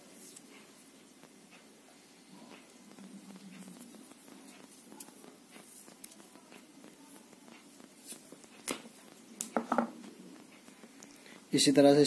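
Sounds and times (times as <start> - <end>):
sharp clicks and taps: 2.4 - 11.2.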